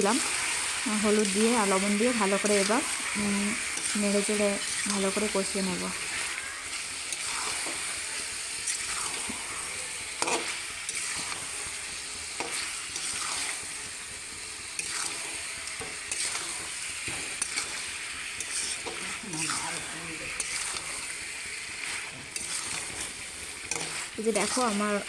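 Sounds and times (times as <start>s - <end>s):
food sizzling in hot oil: 0.0s - 25.0s
spatula scraping a pan: 4.6s - 13.8s, 14.7s - 25.0s.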